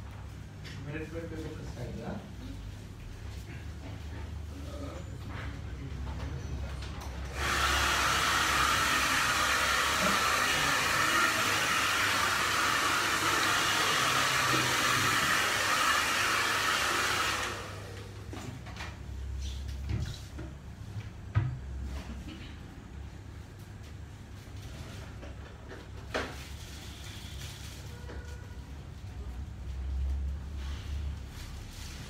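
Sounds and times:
hair dryer running: 7.3s - 18.2s.

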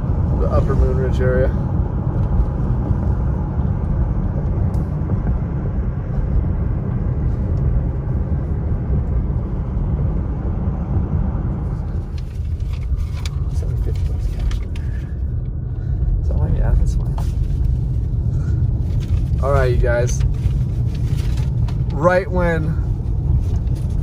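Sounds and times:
car interior road rumble: 0.0s - 24.0s.

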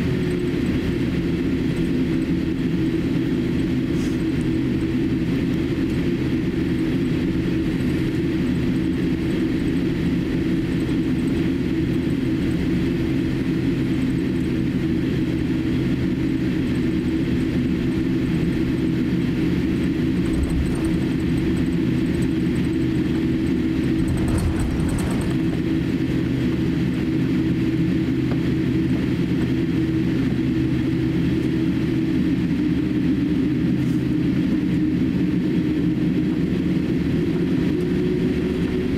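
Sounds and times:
aircraft cabin hum: 0.0s - 38.9s
low thud with rattle: 20.1s - 25.8s.

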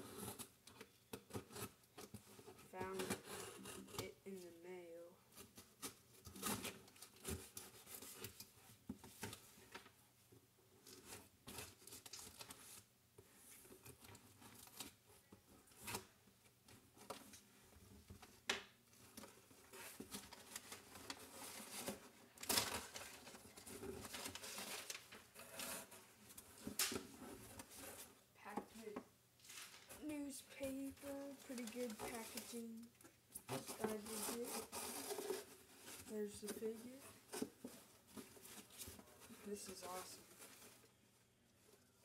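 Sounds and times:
tape and cardboard tearing: 5.8s - 8.3s, 33.4s - 36.3s.

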